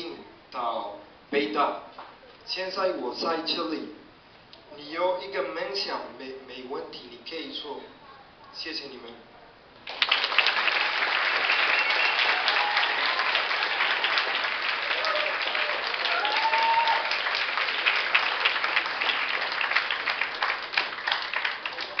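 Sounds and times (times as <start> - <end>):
audience applauding: 9.8 - 22.0.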